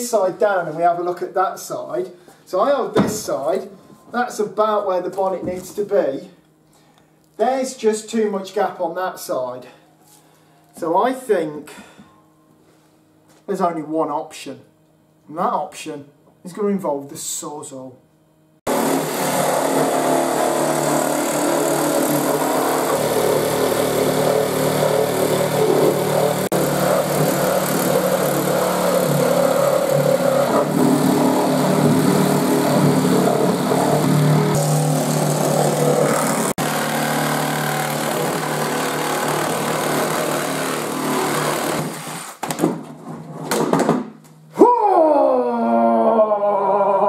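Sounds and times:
reciprocating saw cutting fibreglass: 0:18.7 - 0:42.4.

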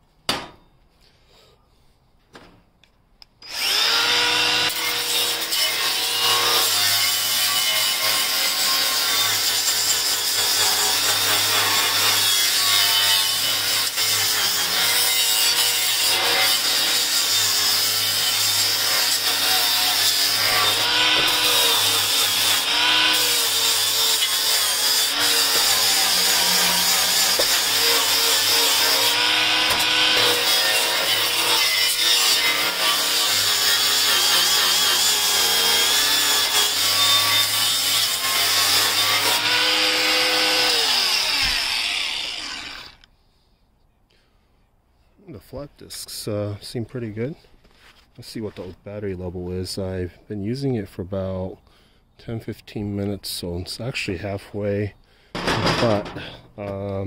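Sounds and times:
angle grinder grinding steel: 0:03.4 - 0:43.1, 0:55.4 - 0:56.5.

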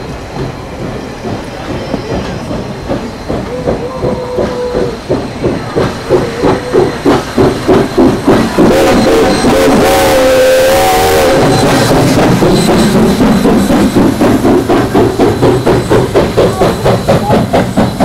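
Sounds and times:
steam hissing: 0:00.0 - 0:18.0
steam locomotive chuffing: 0:00.0 - 0:18.0.

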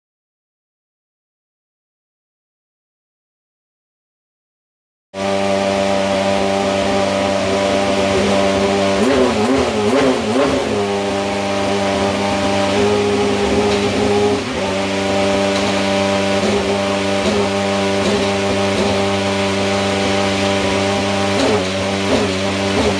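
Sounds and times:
car engine idling: 0:05.2 - 0:22.9
engine throttle blips: 0:05.2 - 0:22.9.

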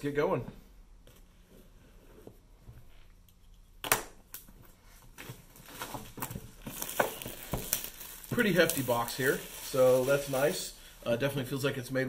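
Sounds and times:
plastic wrap crinkling: 0:05.1 - 0:10.8.

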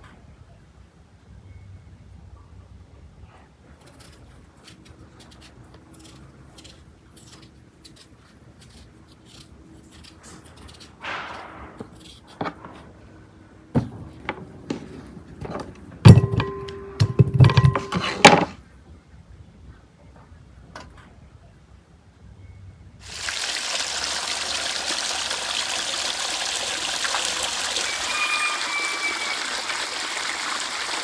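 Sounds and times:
faint ringing tone: 0:01.3 - 0:02.7, 0:16.1 - 0:18.1, 0:22.3 - 0:23.0
knife scraping: 0:03.8 - 0:12.8.

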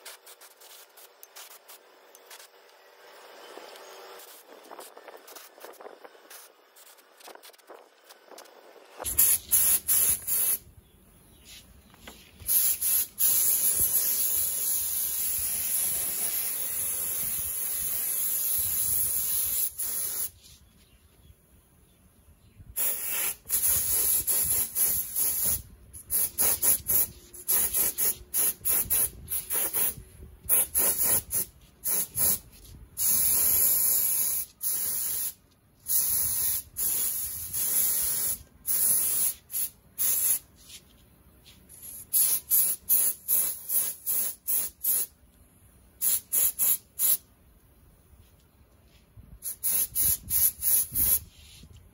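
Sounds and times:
spray gun hissing: 0:09.1 - 0:10.6, 0:12.5 - 0:20.4, 0:22.8 - 0:32.4, 0:33.0 - 0:40.4, 0:42.1 - 0:45.1, 0:46.0 - 0:47.2.

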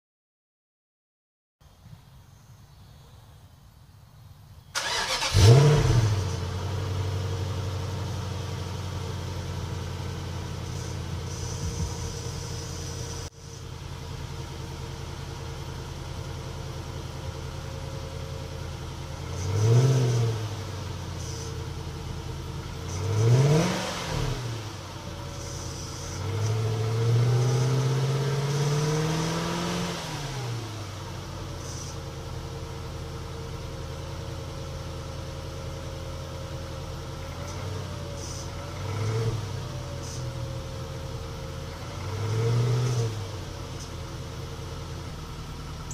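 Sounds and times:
car engine idling and revving: 0:02.3 - 0:45.9
engine cranking: 0:04.8 - 0:06.1.

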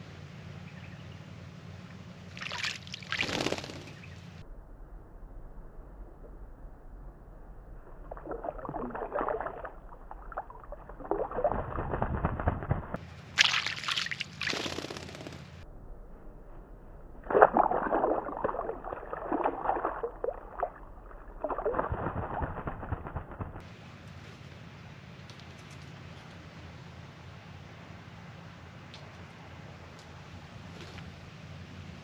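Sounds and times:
water splashing in birdbath: 0:02.3 - 0:04.1, 0:08.0 - 0:15.4, 0:17.2 - 0:23.6.

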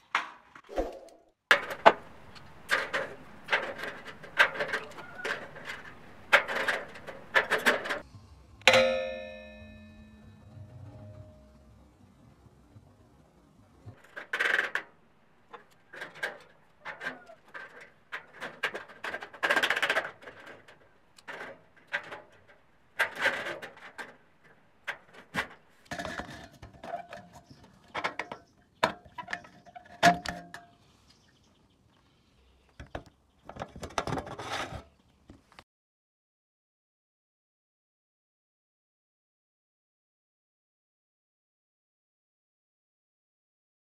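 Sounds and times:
metal clanks clicks and scrapes: 0:02.6 - 0:08.0, 0:13.9 - 0:30.8.

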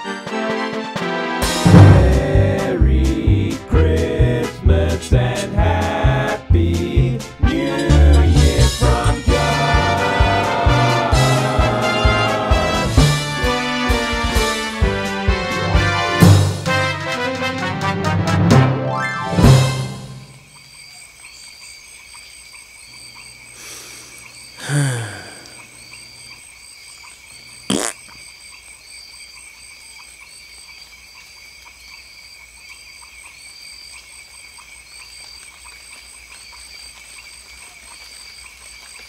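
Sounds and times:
insects chirring: 0:20.2 - 0:39.0.

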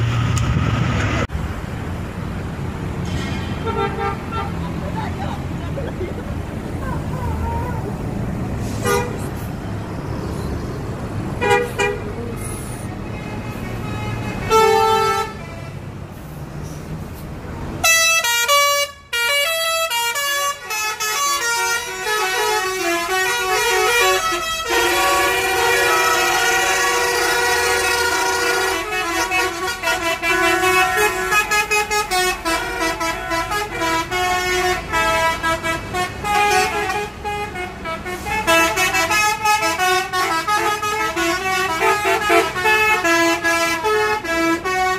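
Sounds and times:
bus engine rumble: 0:00.0 - 0:44.9
multi-tone air horns: 0:08.6 - 0:09.4, 0:11.4 - 0:16.3, 0:17.8 - 0:44.9
short horn blasts: 0:08.6 - 0:09.4, 0:11.4 - 0:15.8, 0:17.8 - 0:44.9.

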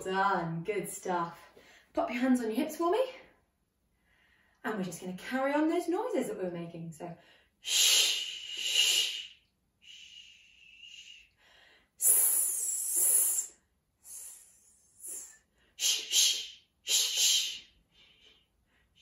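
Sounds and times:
woman hissing and shushing: 0:07.6 - 0:11.3, 0:12.0 - 0:17.8.

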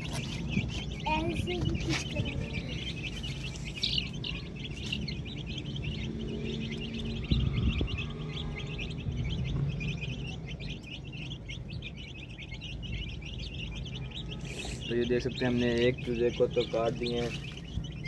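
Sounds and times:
chicks cheeping: 0:00.0 - 0:18.0
low rumble: 0:00.4 - 0:14.1.

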